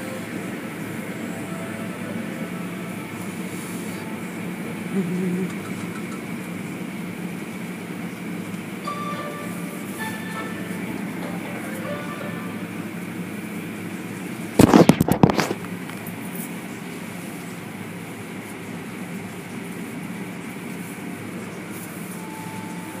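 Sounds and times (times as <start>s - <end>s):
car wash machinery and spray: 0.0s - 23.0s.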